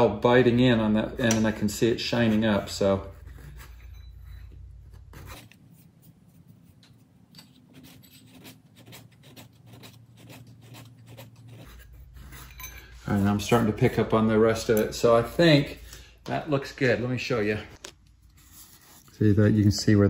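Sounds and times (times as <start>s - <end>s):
file scraping metal: 1.9s - 5.4s, 7.4s - 15.9s.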